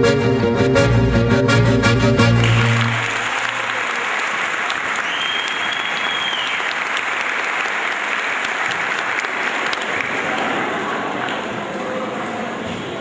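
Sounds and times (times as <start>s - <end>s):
audience applauding: 2.3s - 11.5s
high whistle-like tone: 5.0s - 6.6s.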